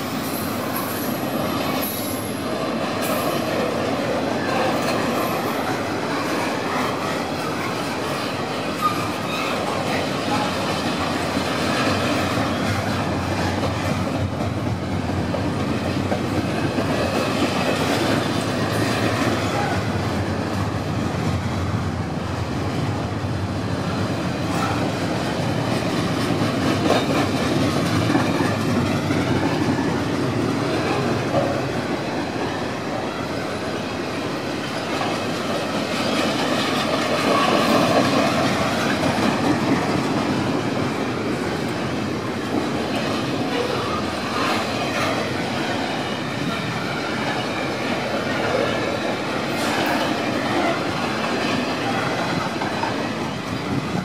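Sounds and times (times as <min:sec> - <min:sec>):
freight train wheels rumbling on rails: 0:00.0 - 0:54.0.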